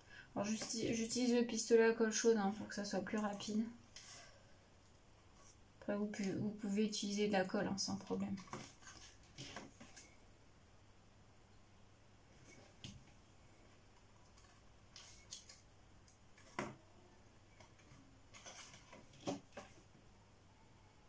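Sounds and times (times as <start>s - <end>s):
paper rustling: 7.9s - 10.2s, 17.6s - 19.8s.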